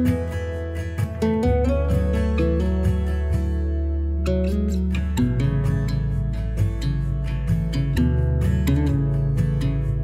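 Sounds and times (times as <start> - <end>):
acoustic guitar music: 0.0 - 10.0
low bass: 0.0 - 10.0.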